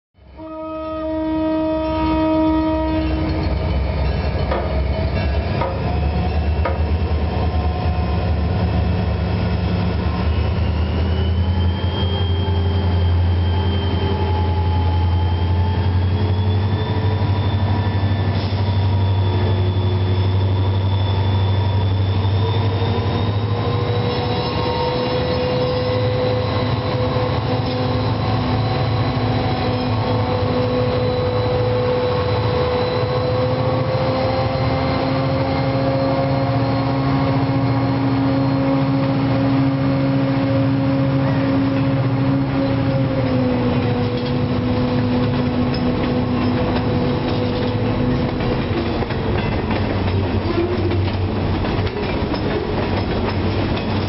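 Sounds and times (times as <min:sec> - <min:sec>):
train engines rumbling: 0:00.2 - 0:54.0
locomotive horn chord: 0:00.3 - 0:03.6.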